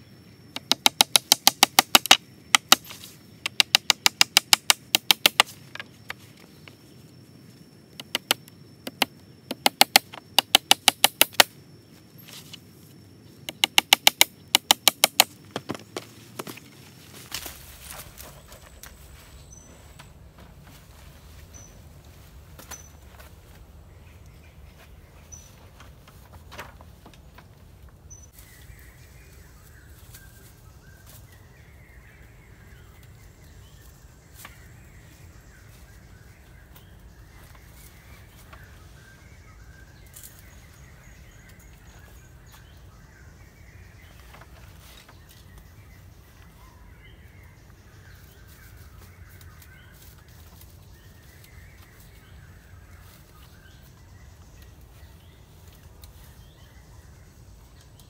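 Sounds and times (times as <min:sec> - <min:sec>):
birds chirping and warbling: 0:00.0 - 0:58.0
sharp knocks: 0:00.6 - 0:05.8, 0:08.0 - 0:11.5, 0:13.5 - 0:16.5.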